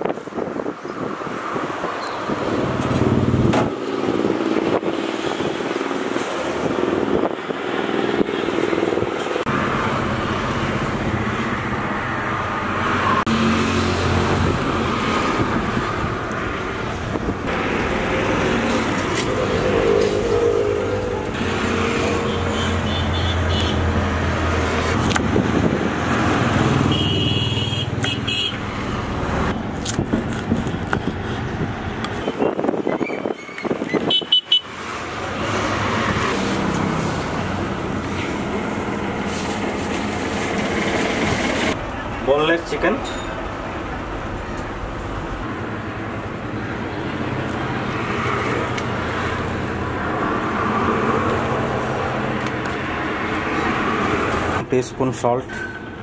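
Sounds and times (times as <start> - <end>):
vehicle engines running: 2.1 - 32.9, 34.7 - 56.0
car horn toot: 22.2 - 23.8, 26.9 - 28.6, 34.0 - 34.7.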